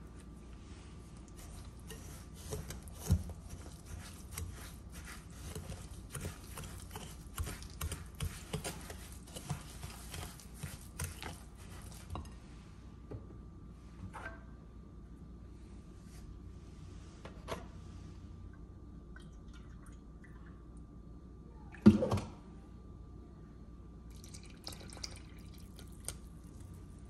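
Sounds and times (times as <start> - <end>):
whisk scraping a glass bowl: 1.4 - 12.3.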